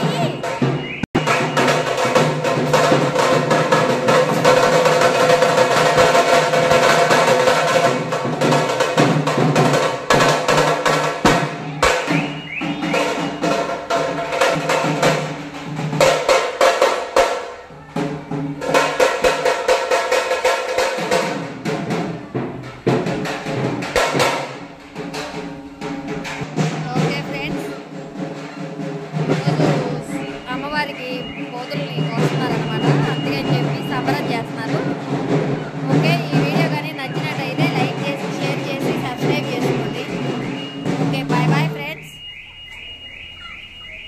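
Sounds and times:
drums playing a fast beat: 0.0 - 42.8.

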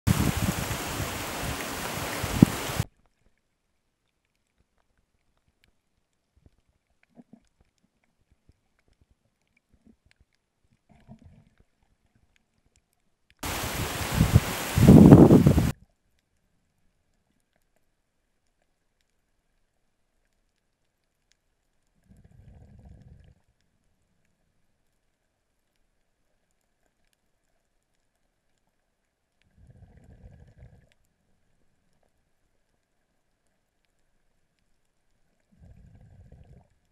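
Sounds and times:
wind noise on microphone: 0.1 - 2.8, 13.4 - 15.7
muffled water rumble: 0.1 - 2.9, 13.4 - 15.7, 22.0 - 24.8, 29.5 - 32.4, 35.4 - 36.9
small underwater clicks: 0.6 - 13.5, 15.7 - 36.9.

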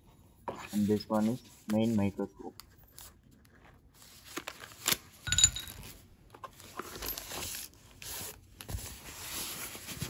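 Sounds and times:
cardboard and paper rustling: 3.0 - 10.0.

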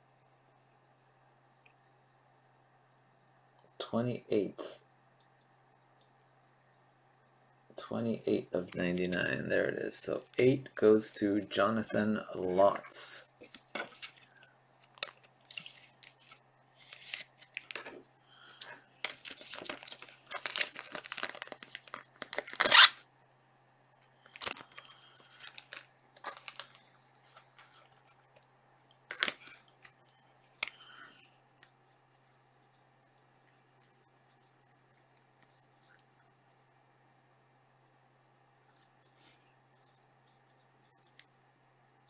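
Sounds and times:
plastic rustling and crinkling: 13.4 - 22.9, 24.2 - 32.3.

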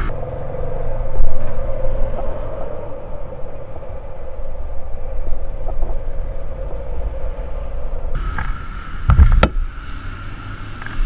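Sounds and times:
motorcycle engine running: 0.0 - 0.3
wind on camera: 0.0 - 11.0.

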